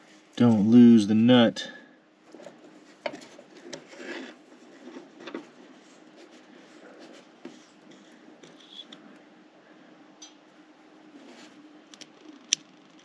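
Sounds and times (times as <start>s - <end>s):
light scraping: 2.3s - 9.1s.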